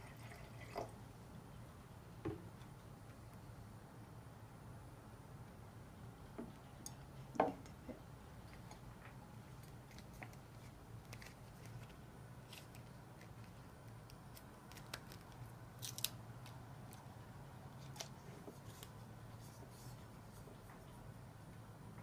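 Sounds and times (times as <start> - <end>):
sticker peeling crackle: 9.5 - 17.1.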